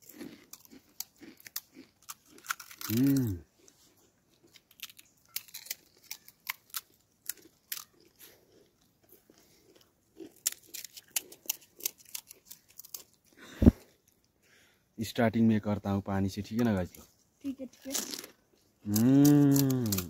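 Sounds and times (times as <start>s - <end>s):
crisp shells crunching: 0.0s - 3.4s, 4.4s - 8.6s, 9.3s - 13.3s, 17.8s - 20.0s.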